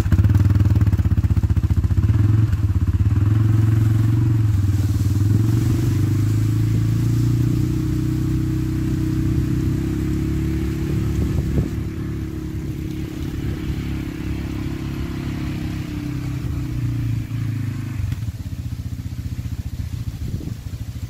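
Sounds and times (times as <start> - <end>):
atv engine idling: 0.0 - 21.0.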